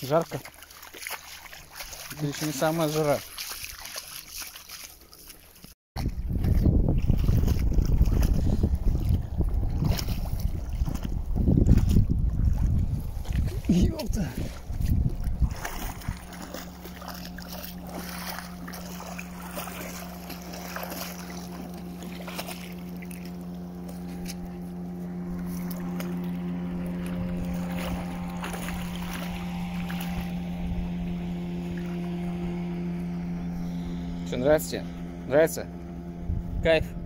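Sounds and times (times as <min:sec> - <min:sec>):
dog splashing in water: 0:00.0 - 0:24.5
motor drone: 0:06.1 - 0:37.0.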